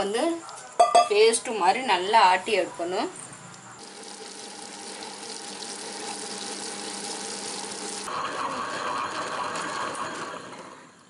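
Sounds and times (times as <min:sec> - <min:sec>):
grinder motor hum: 0:03.8 - 0:11.0.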